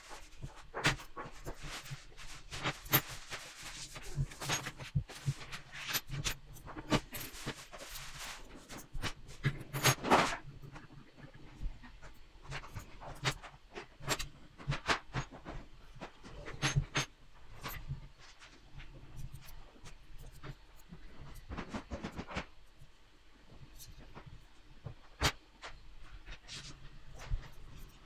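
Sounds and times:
small metal parts clicking and rattling: 0:00.0 - 0:18.4, 0:19.1 - 0:22.9.

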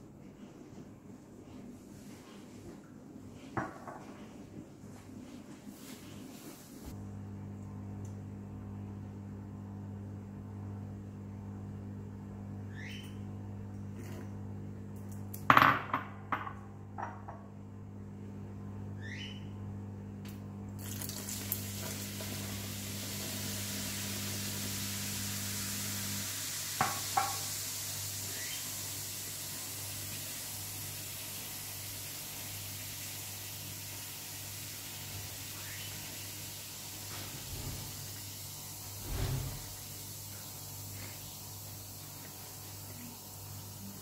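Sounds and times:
fizzing hiss in drain: 0:20.8 - 0:44.0.

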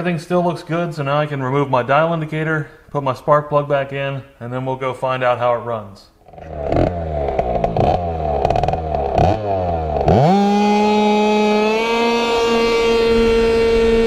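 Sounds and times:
scooter engine revving: 0:06.3 - 0:14.0.

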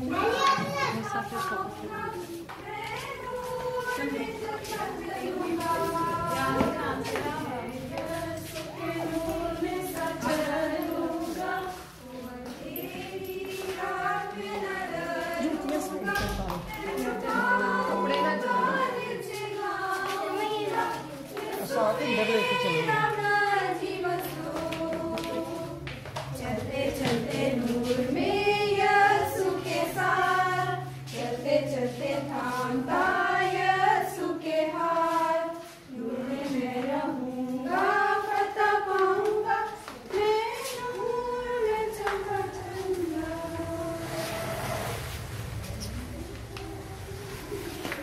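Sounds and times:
congregation singing a hymn: 0:00.0 - 0:48.0.

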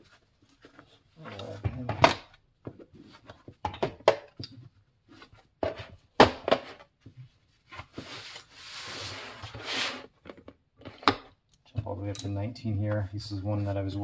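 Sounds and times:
metal wrenches clicking and clinking: 0:12.1 - 0:12.4.

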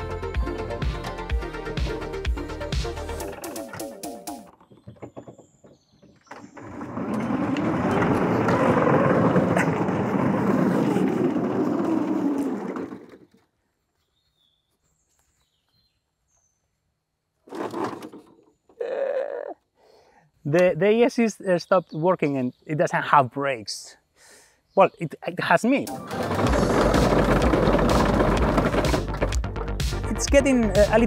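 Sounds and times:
tank tracks rattling: 0:03.2 - 0:13.4, 0:17.5 - 0:18.4, 0:25.9 - 0:29.5.

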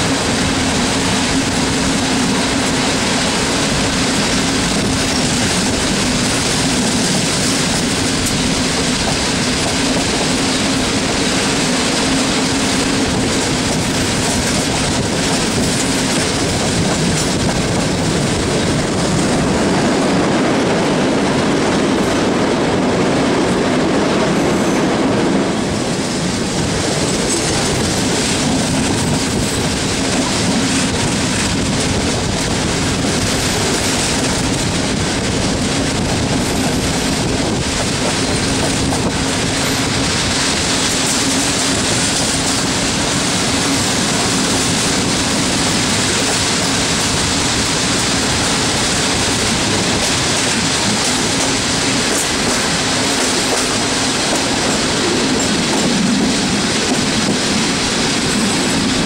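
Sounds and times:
train rumbling over steel bridge: 0:00.0 - 0:59.0
train wheels clattering over rails: 0:00.0 - 0:59.0.

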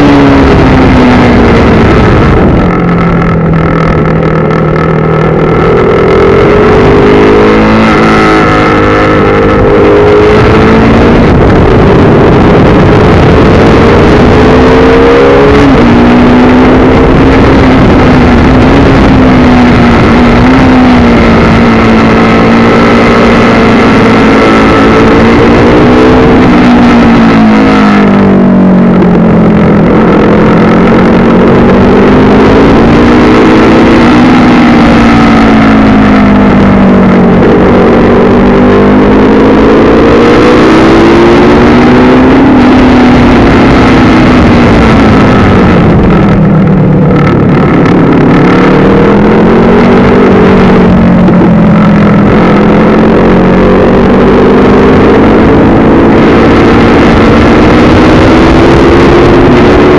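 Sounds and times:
motorcycle engine revving: 0:00.0 - 0:59.9
wind rush: 0:00.0 - 0:59.9.

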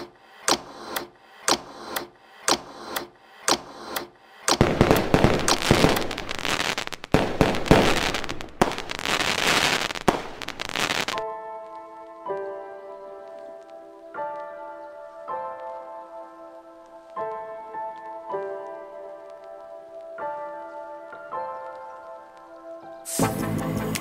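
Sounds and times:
clock ticking: 0:00.0 - 0:06.2
fireworks bangs and crackling: 0:04.5 - 0:11.2, 0:23.1 - 0:23.5
music: 0:11.2 - 0:24.0.

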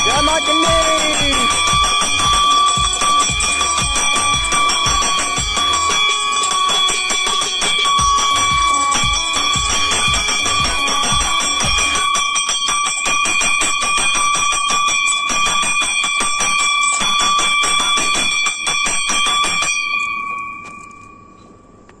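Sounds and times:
metal bell rung rapidly: 0:00.0 - 0:20.3.

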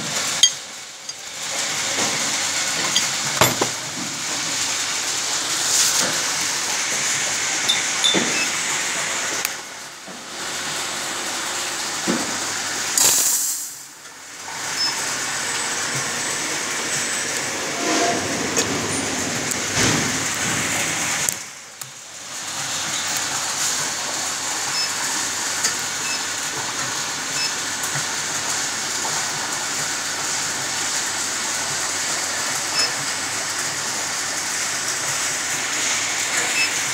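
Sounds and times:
injection molding machine running: 0:00.2 - 0:09.5.

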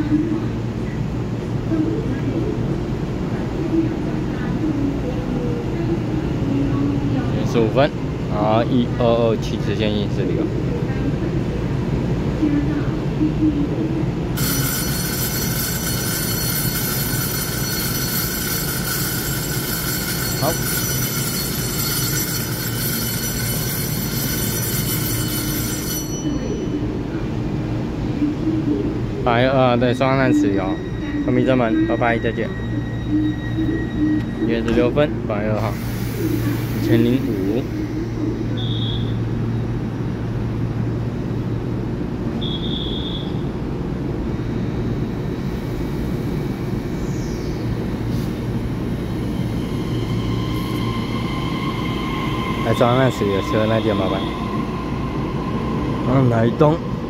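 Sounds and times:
electric train rumble and hum: 0:00.0 - 0:57.0
train motor whine: 0:14.4 - 0:26.3, 0:42.4 - 0:57.0
high-pitched whining tones: 0:29.3 - 0:39.4, 0:44.3 - 0:57.0.

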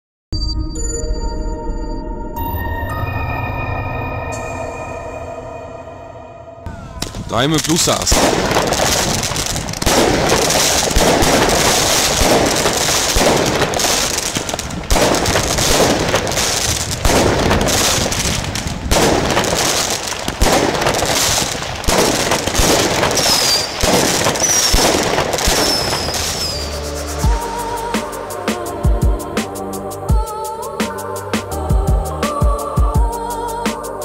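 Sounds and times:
fireworks crackling and banging: 0:06.9 - 0:28.8
falling firework whistles: 0:08.1 - 0:28.8.

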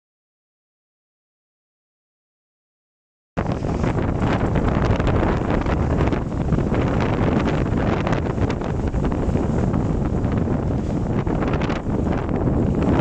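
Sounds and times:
hull splashing through water: 0:03.4 - 0:13.0
wind buffeting microphone: 0:03.4 - 0:13.0.

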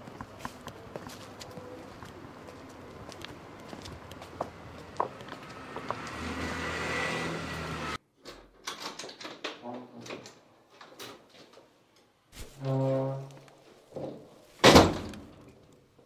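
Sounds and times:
footsteps: 0:00.0 - 0:06.7, 0:12.3 - 0:12.7
vehicle passing: 0:01.6 - 0:08.0.

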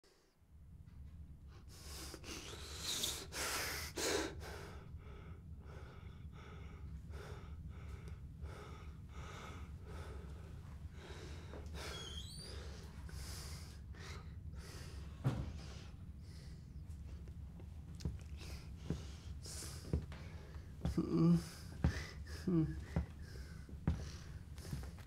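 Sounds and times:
steady low hum: 0:00.1 - 0:25.0
man gasping for breath: 0:18.4 - 0:25.0.

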